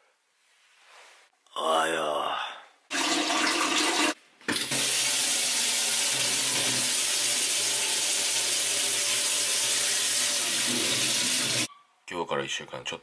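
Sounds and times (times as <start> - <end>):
tap water running into sink: 2.9 - 11.7.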